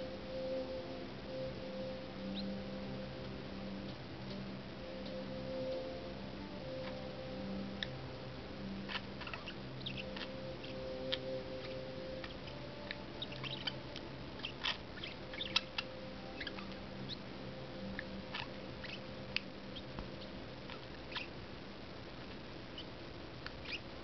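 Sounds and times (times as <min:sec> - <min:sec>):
faint steady hum: 0:00.0 - 0:24.0
parakeets chirping and clicking: 0:05.0 - 0:07.1, 0:07.7 - 0:08.0, 0:08.8 - 0:21.3, 0:22.8 - 0:23.8.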